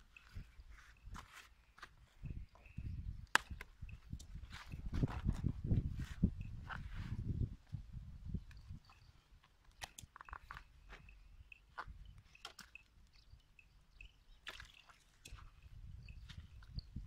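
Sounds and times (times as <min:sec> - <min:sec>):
bamboo trap clicks and rattles: 0:08.4 - 0:10.7.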